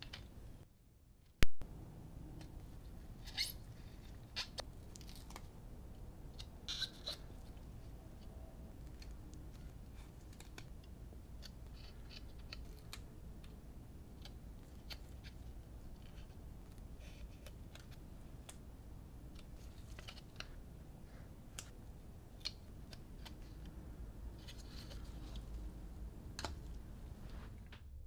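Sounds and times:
low room hum: 0.0s - 28.0s.

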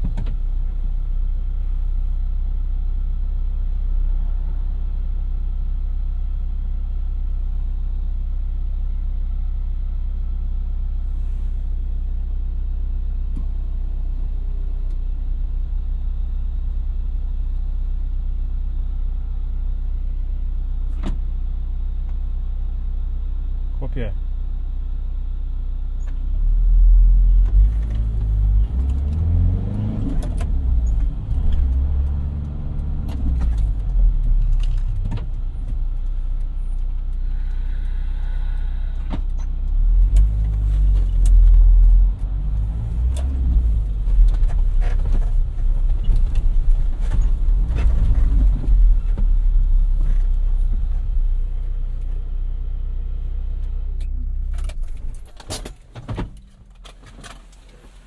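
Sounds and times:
van engine running: 0.0s - 58.0s
clicks and rattles in cab: 30.1s - 36.5s, 54.0s - 58.0s.

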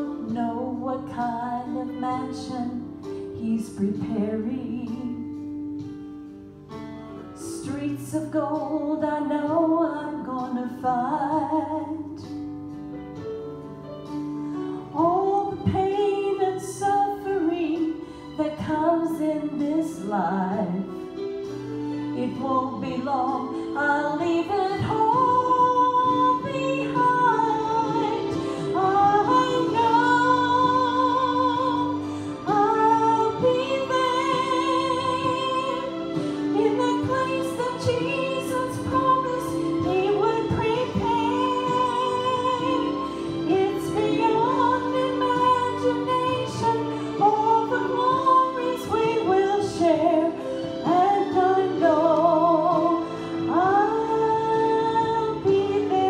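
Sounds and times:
sustained instrumental accompaniment: 11.3s - 56.0s
woman singing gospel song: 22.2s - 56.0s.

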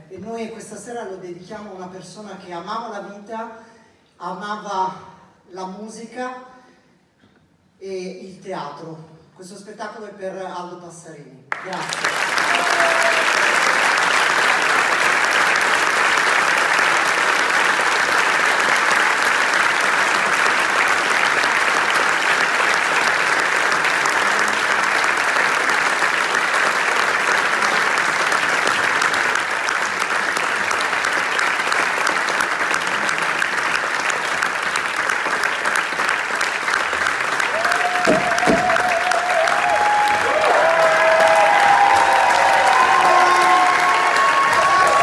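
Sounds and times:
audience applauding: 11.5s - 45.0s.

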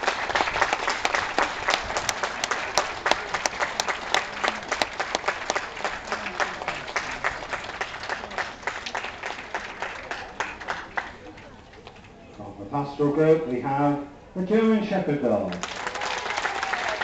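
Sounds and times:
audience applauding: 0.0s - 11.4s, 15.6s - 17.0s
nearby hands clapping: 0.1s - 11.2s.

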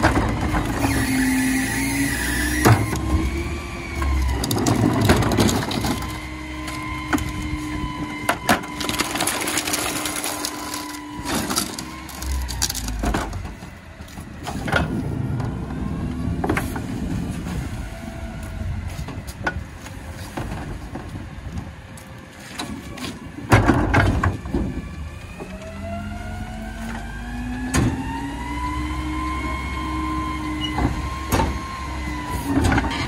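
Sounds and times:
engine revving whine: 0.0s - 20.1s, 24.2s - 33.0s
garbage truck engine running: 0.0s - 22.0s.

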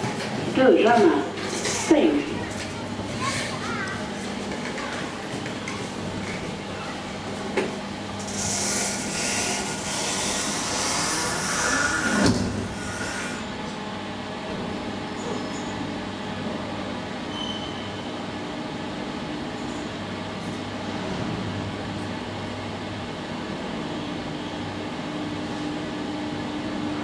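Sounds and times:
elevator car humming: 0.0s - 27.0s
elevator doors sliding shut: 8.2s - 13.2s.

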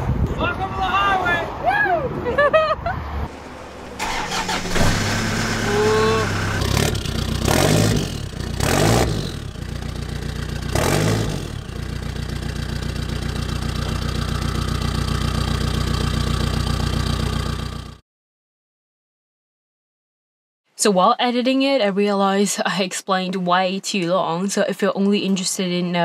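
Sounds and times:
diesel engine starting and revving: 3.1s - 18.0s.

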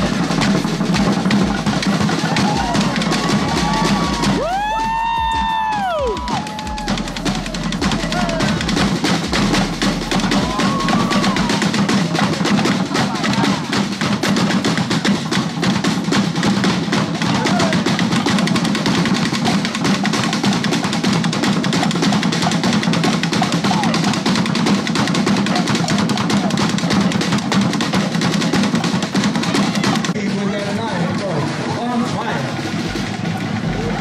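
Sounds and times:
bass drum beats: 0.0s - 34.0s
rapid hand drumming: 0.0s - 34.0s.

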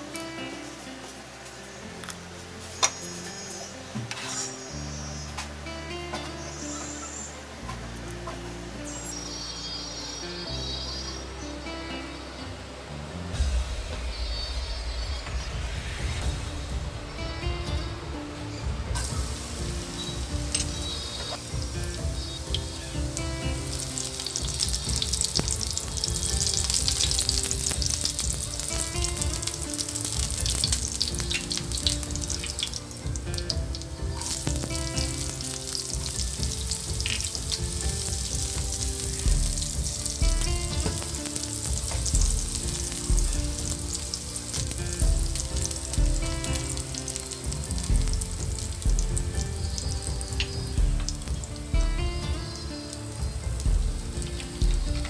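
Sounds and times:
soft background music: 0.0s - 55.0s
garlic and onion sizzling in oil: 18.4s - 55.0s.

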